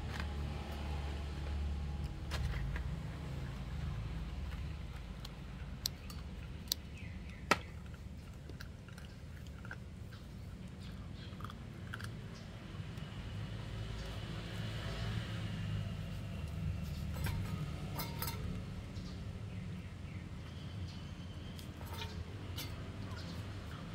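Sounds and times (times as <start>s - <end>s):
puppy crunching bones: 4.4s - 13.2s.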